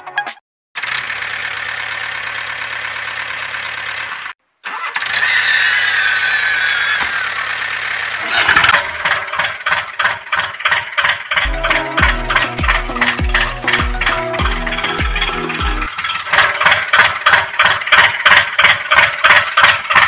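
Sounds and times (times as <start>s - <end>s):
small tractor motor running: 0.8s - 20.0s
rhythmic music: 11.4s - 15.9s.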